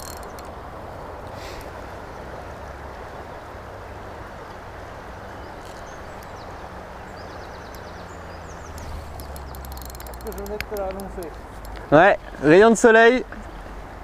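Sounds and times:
river flowing over gravel: 0.0 - 14.0.

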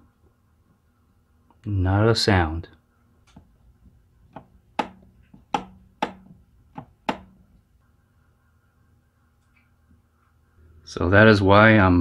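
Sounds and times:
wall switch clicking: 4.3 - 7.5.

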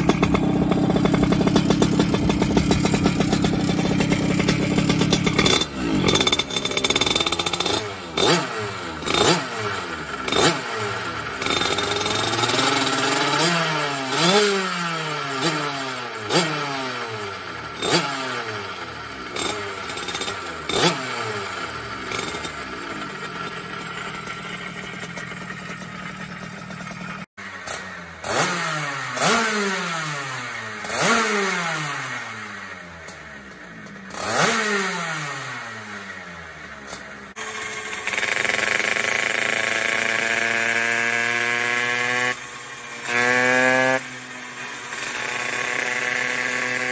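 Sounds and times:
moped engine idling: 0.0 - 13.3, 18.5 - 28.2, 32.5 - 34.2, 35.8 - 41.2, 44.0 - 46.9
moped engine revving: 0.0 - 46.9.

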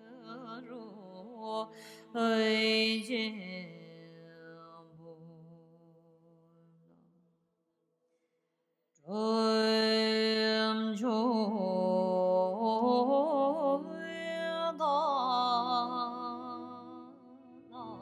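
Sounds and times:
person singing: 9.1 - 18.0.

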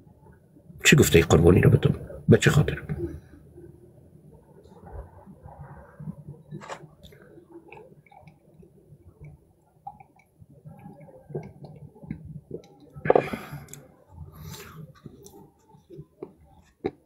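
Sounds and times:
man sipping and swallowing: 9.2 - 17.0.

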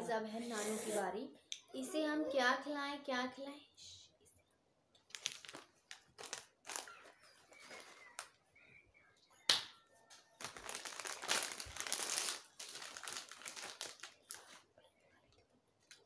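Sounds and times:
plastic chip packet crinkling: 5.0 - 8.4, 10.3 - 14.6.

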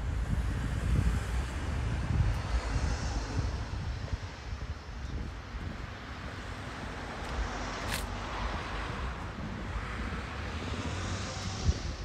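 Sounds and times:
wind buffeting microphone: 0.0 - 12.0
car passing: 6.0 - 12.0.

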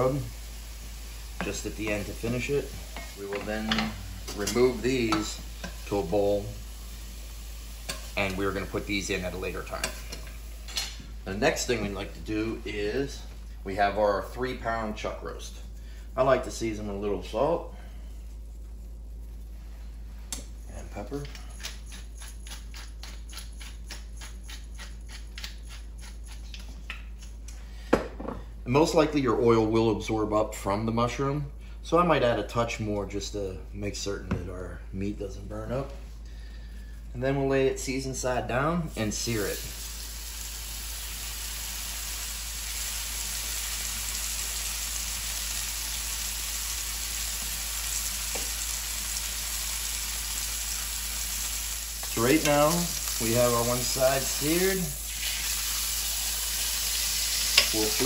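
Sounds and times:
meat sizzling in hot oil: 0.0 - 10.9, 39.2 - 58.0
pepper mill grinding: 21.2 - 27.3, 49.5 - 58.0.

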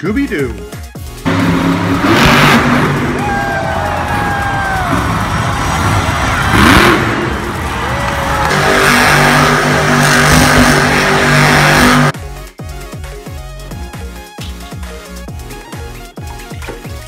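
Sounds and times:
truck engine revving hard: 1.2 - 12.2.

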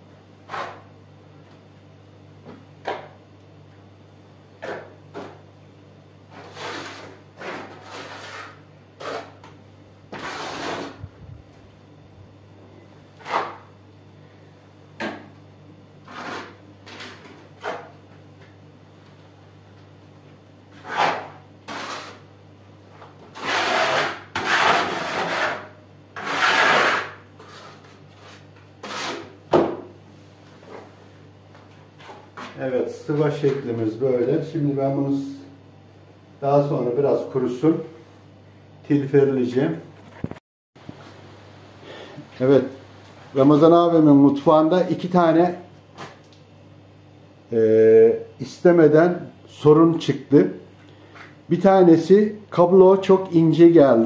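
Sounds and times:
trowel scraping wet plaster: 0.5 - 0.9, 6.3 - 9.5, 10.1 - 11.0, 16.0 - 17.9, 20.8 - 22.2, 23.3 - 29.3.

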